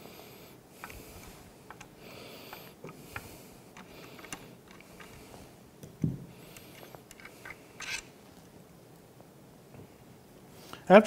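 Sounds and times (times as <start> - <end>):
faint clicks and scrapes of rifle: 6.4 - 8.5.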